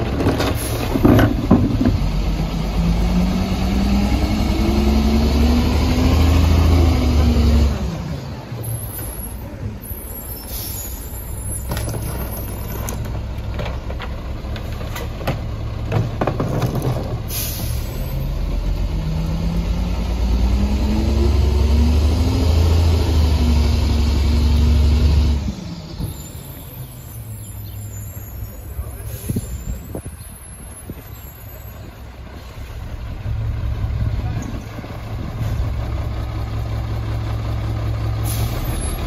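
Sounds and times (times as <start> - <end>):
diesel engine revving: 0.0 - 39.0
air brake hiss: 10.3 - 11.1, 17.3 - 18.2, 38.2 - 38.8.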